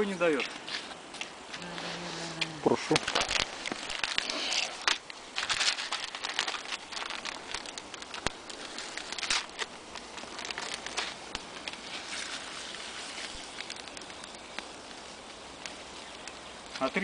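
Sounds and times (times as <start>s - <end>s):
foil packets crinkling: 1.6s - 17.0s.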